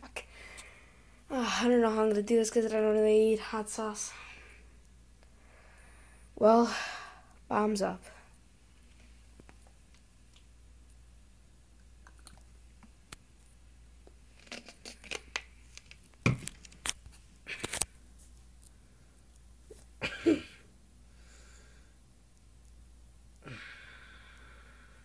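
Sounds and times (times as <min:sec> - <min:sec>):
wet mouth clicks and smacks: 0:11.8 - 0:13.2.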